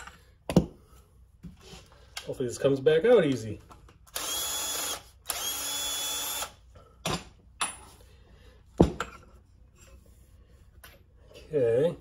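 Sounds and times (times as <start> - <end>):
cordless drill running: 4.1 - 6.6.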